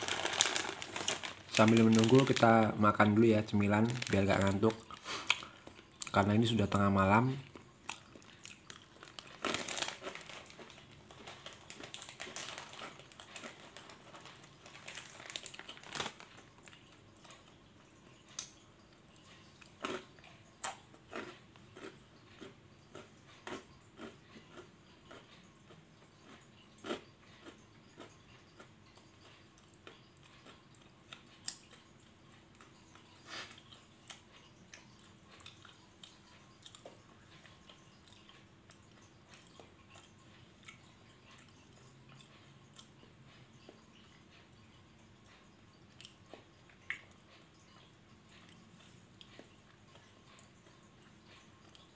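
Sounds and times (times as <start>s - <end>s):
person chewing crunchy snack: 0.0s - 6.6s, 7.2s - 17.6s, 18.3s - 31.8s.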